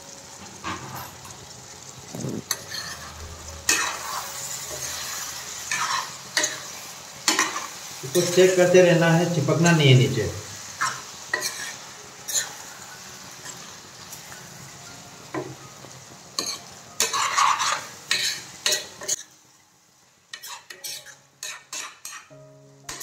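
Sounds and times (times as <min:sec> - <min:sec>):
food sizzling in a pan: 0:00.0 - 0:23.0
steel spatula scraping a pan: 0:00.6 - 0:01.3, 0:02.5 - 0:08.7, 0:10.8 - 0:14.4, 0:16.4 - 0:19.3, 0:20.3 - 0:23.0.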